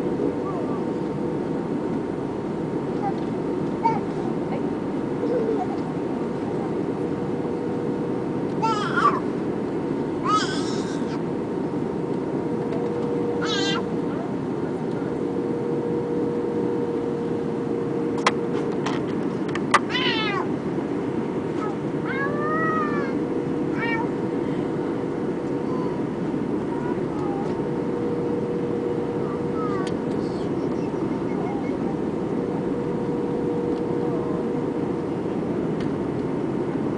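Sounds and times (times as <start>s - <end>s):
aircraft cabin engine rush: 0.0s - 36.9s
high-pitched cries: 13.4s - 13.9s.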